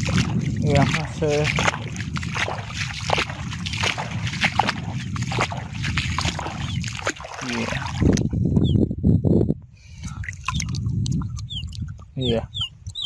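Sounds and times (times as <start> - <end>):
river water sloshing and splashing: 0.0 - 8.3
bird chirping: 6.6 - 6.9, 10.5 - 13.0.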